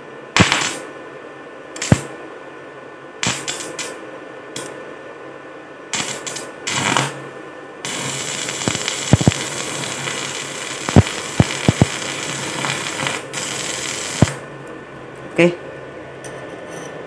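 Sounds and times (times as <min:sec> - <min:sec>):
welding arc hissing and popping: 0:00.4 - 0:00.8, 0:01.8 - 0:02.1, 0:03.2 - 0:04.0, 0:05.9 - 0:14.4.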